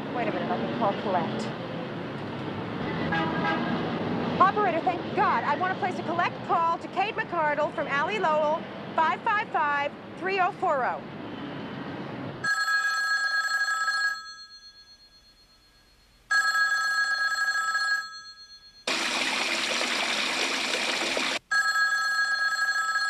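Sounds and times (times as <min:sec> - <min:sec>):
telephone bell ringing: 0:12.4 - 0:18.9, 0:21.5 - 0:23.0.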